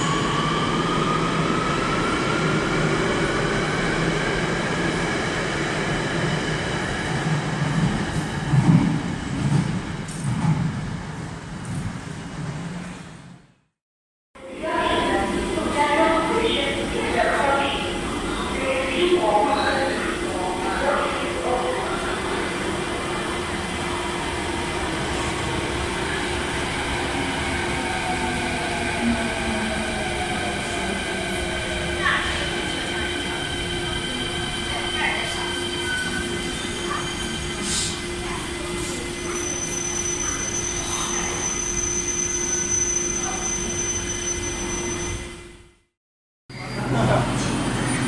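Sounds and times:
subway train running in: 0:00.0 - 0:13.7, 0:14.4 - 0:45.9, 0:46.5 - 0:48.0
train braking: 0:25.9 - 0:45.6.

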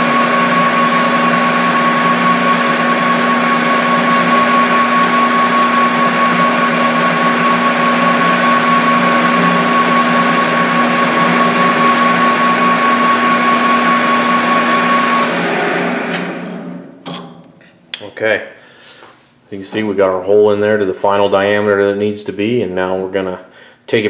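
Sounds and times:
machine winding down: 0:00.0 - 0:16.8
lathe whining: 0:00.0 - 0:16.9.

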